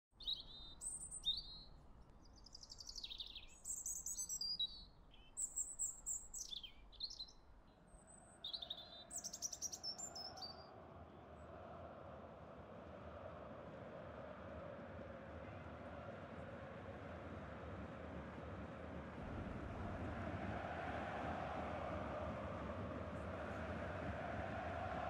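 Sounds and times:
songbirds chirping and trilling: 0:00.2 - 0:10.8
steady rushing noise: 0:11.0 - 0:25.0.

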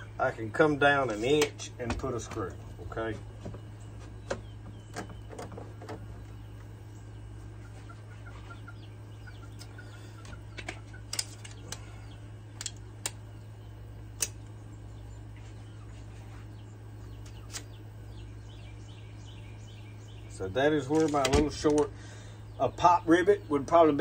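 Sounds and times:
steady low hum: 0:00.0 - 0:24.0
faint bird calls: 0:03.0 - 0:12.6.

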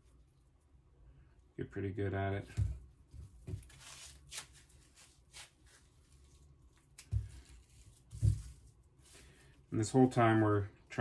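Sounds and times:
plastic wrap and twine rustling: 0:02.4 - 0:11.0.

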